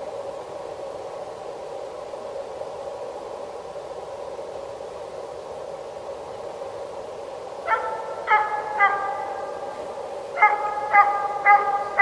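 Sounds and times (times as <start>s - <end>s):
background hiss: 0.0s - 12.0s
dog barking: 7.7s - 12.0s.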